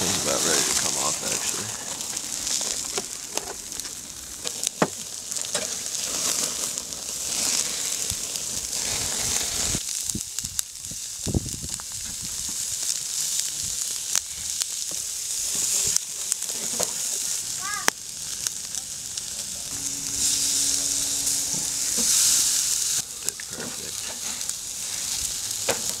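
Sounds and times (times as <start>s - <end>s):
embers popping: 0.0s - 26.0s
meat sizzling on grill: 0.0s - 26.0s.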